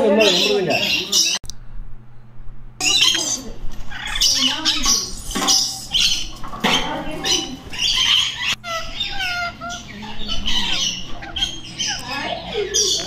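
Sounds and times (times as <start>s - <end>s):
parrots screeching and chattering: 0.0s - 1.4s, 2.8s - 13.0s.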